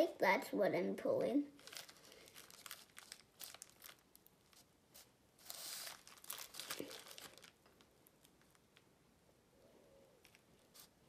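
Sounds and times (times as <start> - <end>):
plastic bag crinkling: 1.5 - 4.7, 5.4 - 8.9.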